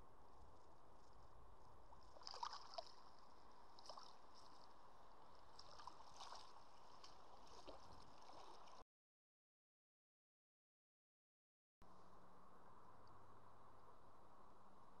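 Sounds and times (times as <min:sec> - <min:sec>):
water splashing: 0:02.0 - 0:08.8.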